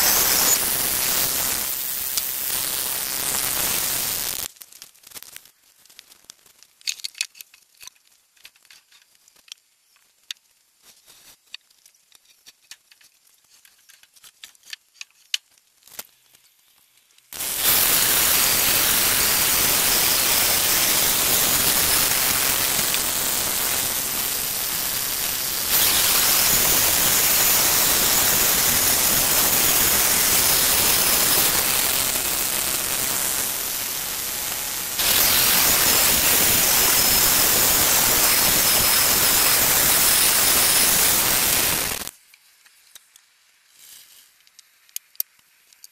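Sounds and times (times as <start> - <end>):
bandsaw mill cutting a log: 0.0 - 2.5, 17.4 - 42.1.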